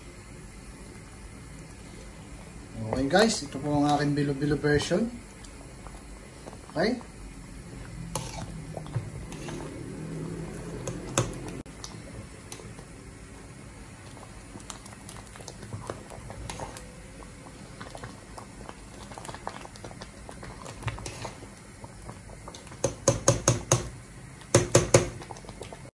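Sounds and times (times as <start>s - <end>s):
metal ladle scraping a pot: 8.1s - 9.9s, 20.9s - 21.4s.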